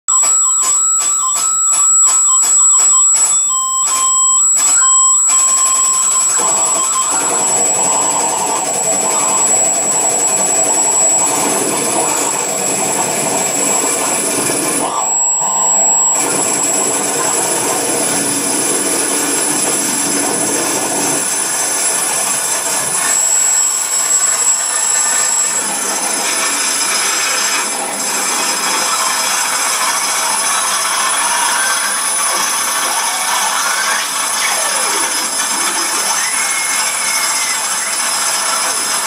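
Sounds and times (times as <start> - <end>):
piercing high tones: 0.1 - 39.0
screeching electronic noise music: 0.1 - 39.0.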